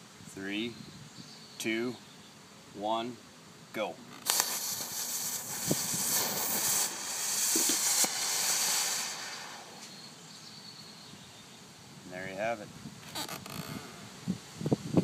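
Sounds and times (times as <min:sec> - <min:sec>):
smoke ball venting hiss: 0:03.4 - 0:12.2
fuse sputtering: 0:04.1 - 0:10.1
small pops: 0:04.1 - 0:10.1.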